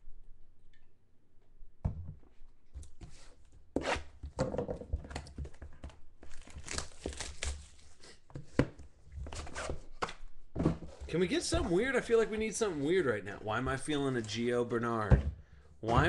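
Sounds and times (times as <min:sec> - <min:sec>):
shrink wrap crackling and tearing: 0:06.3 - 0:07.8.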